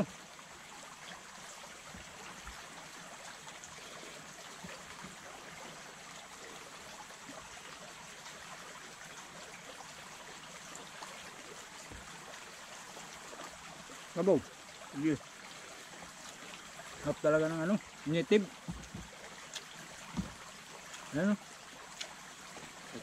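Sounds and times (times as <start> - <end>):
river water rushing: 0.0 - 23.0
faint small ticks: 18.6 - 21.1, 21.8 - 23.0.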